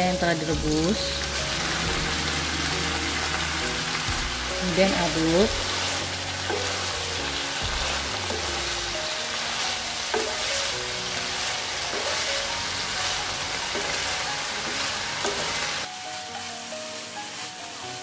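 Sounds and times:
vegetables sizzling in hot oil: 0.0 - 18.0
spatula stirring and tossing: 0.7 - 16.4
spatula knocking against pan: 10.1 - 10.4.

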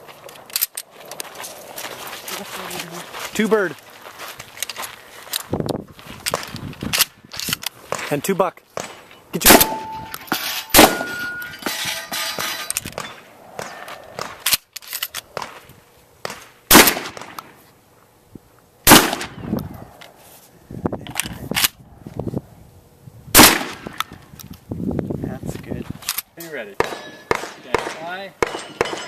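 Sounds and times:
shotgun blasts: 8.8 - 11.3, 16.2 - 17.4, 18.8 - 19.4, 23.3 - 24.0, 26.8 - 29.0
steel target ringing: 9.4 - 13.2, 26.8 - 27.4, 28.4 - 29.0.

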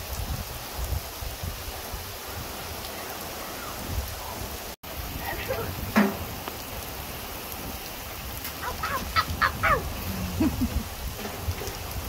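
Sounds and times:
steady rain falling: 0.0 - 12.0
bird calling: 8.5 - 10.7.

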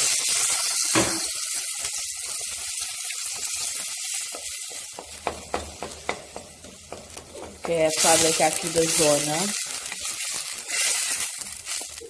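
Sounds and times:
sauce sizzling in a pot: 0.0 - 12.0
wooden spoon knocking on pot: 4.4 - 8.0.

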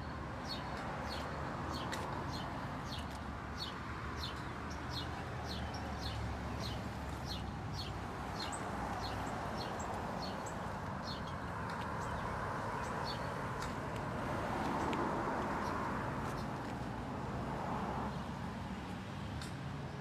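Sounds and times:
traffic passing: 0.0 - 20.0
birds chirping: 0.4 - 13.8.

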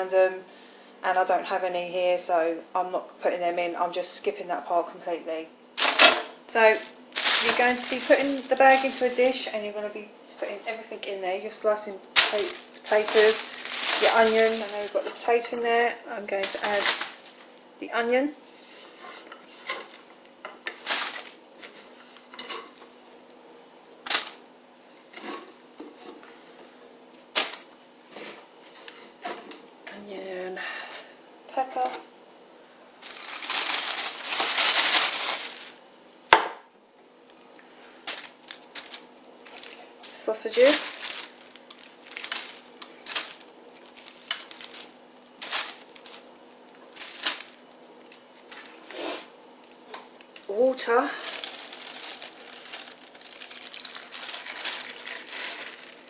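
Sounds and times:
plastic bag crinkling: 5.8 - 9.8, 12.0 - 15.4, 16.2 - 17.6, 20.7 - 21.8, 24.0 - 24.5, 27.4 - 27.7, 33.0 - 35.8, 37.8 - 48.8, 49.6 - 56.0.

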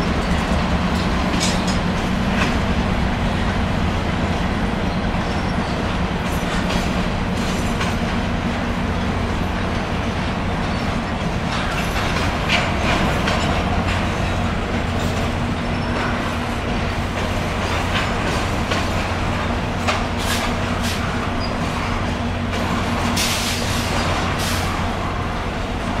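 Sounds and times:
train wheels rumbling on rails: 0.0 - 26.0
wheel squeals and clacks: 10.6 - 19.2, 19.8 - 24.8.

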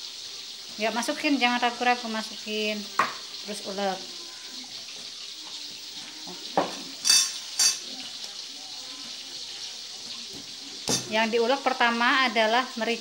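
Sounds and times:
fish frying in hot oil: 0.0 - 13.0
metal clinking on crockery: 6.6 - 8.0.

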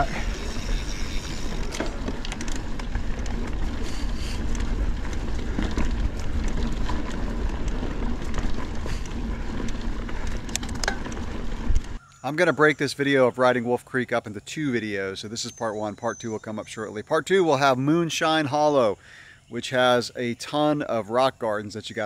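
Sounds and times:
wind rumbling on microphone: 0.0 - 12.0
bike clicks and rattles: 0.0 - 12.2
bike tyres rolling over dirt: 0.0 - 18.9.

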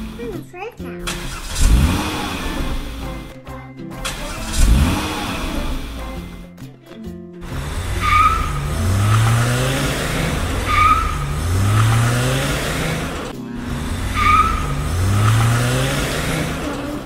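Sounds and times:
race car engine revving: 1.1 - 3.4, 4.0 - 6.4, 7.4 - 17.0
tire squeals: 7.5 - 17.0.

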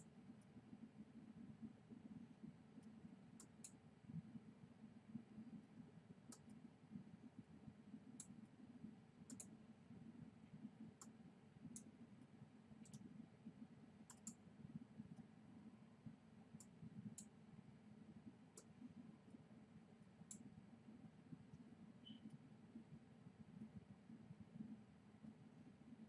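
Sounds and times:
low steady room hum: 0.0 - 26.0
faint computer mouse clicks: 2.8 - 3.8, 6.3 - 6.6, 8.2 - 8.4, 9.3 - 9.5, 11.0 - 11.9, 12.8 - 13.1, 14.1 - 14.4, 16.6 - 17.3, 21.5 - 22.4.

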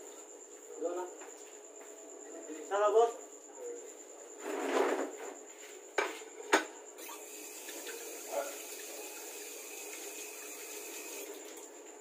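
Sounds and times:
water tap running: 7.0 - 11.7.

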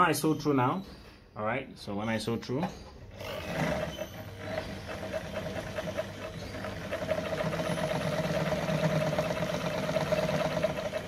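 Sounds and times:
sewing machine running: 3.1 - 11.0.

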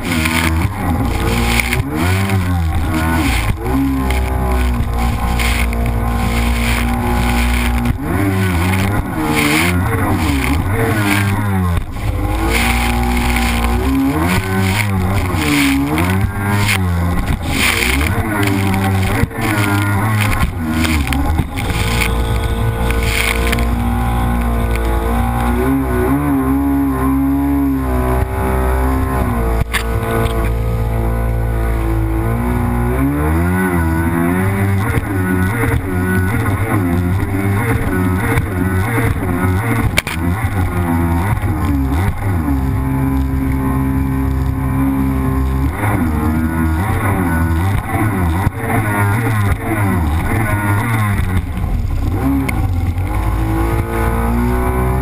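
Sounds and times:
rushing water spray: 0.0 - 23.8
jet ski engine revving: 0.0 - 55.0.

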